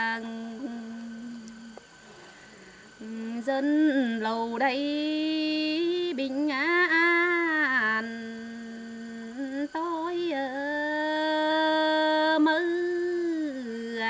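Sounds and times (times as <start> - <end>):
woman singing unaccompanied: 0.0 - 1.9, 2.8 - 14.0.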